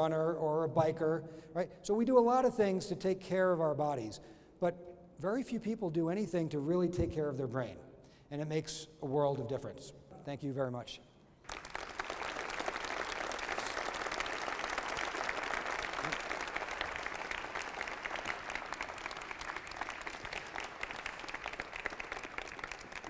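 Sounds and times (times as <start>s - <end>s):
audience applauding: 11.4s - 23.0s.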